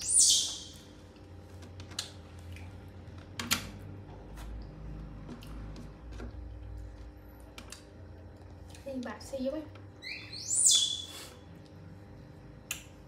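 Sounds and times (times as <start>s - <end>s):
baby monkey squeaking: 0.0s - 0.8s, 10.0s - 11.1s.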